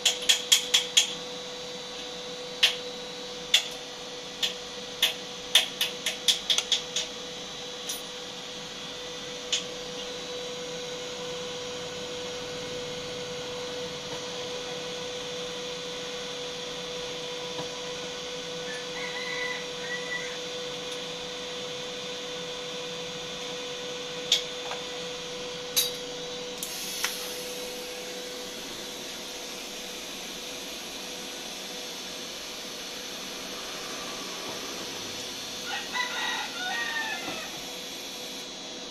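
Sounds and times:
cooling fan running: 0.0s - 38.9s
welding arc hissing: 26.5s - 38.5s.

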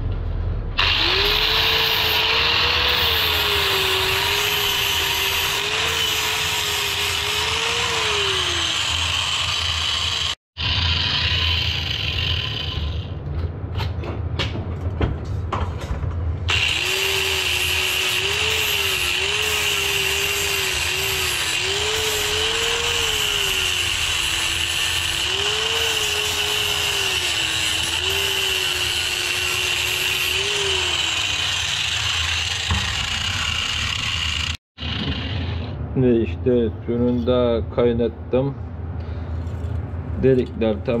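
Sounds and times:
angle grinder grinding metal: 0.8s - 13.1s, 16.5s - 35.7s.

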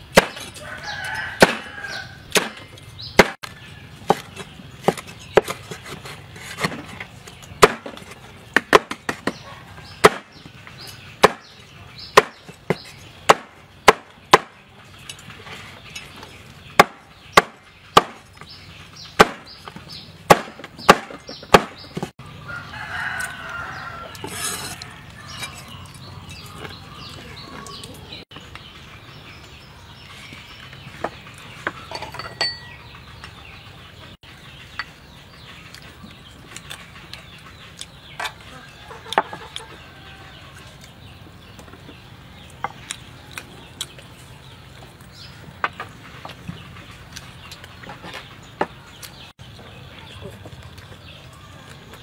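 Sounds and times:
knife chopping on wooden board: 1.4s - 1.7s, 2.3s - 2.6s, 3.2s - 3.4s, 7.6s - 9.4s, 10.0s - 10.4s, 11.2s - 11.5s, 12.2s - 14.6s, 19.2s - 19.5s, 20.3s - 22.1s.

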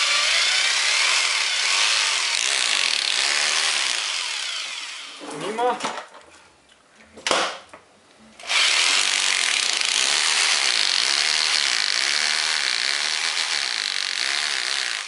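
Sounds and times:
rotary hammer drilling into masonry: 0.0s - 5.2s, 8.4s - 15.0s.

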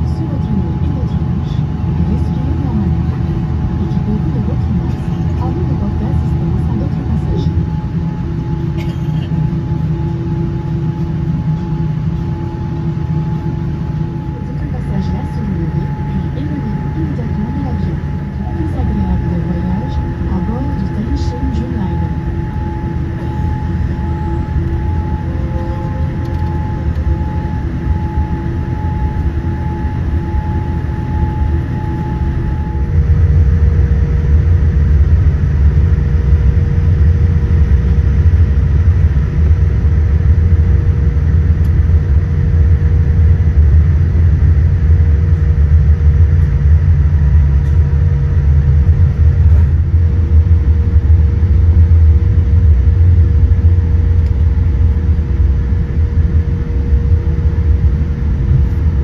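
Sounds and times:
steady tones: 0.0s - 41.3s
airliner cabin hum: 0.0s - 59.0s
low rumble: 0.0s - 59.0s.

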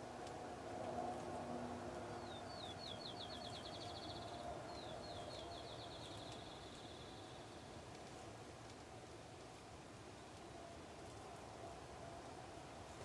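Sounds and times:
songbird singing trill: 2.1s - 7.7s.

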